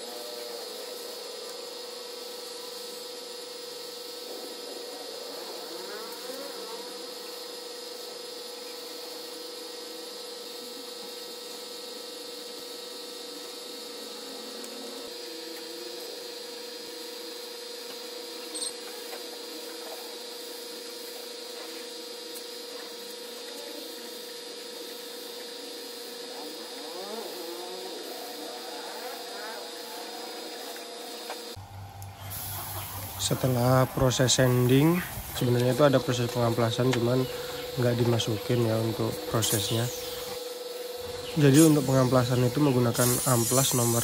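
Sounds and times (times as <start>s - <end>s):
steady hum: 0.0s - 44.0s
spray gun hissing: 18.0s - 44.0s.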